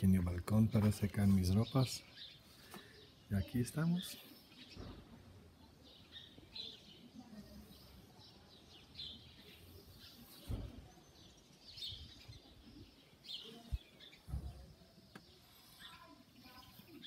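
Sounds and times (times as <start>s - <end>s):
birds chirping faintly: 0.0s - 17.0s
low thump: 14.2s - 14.7s.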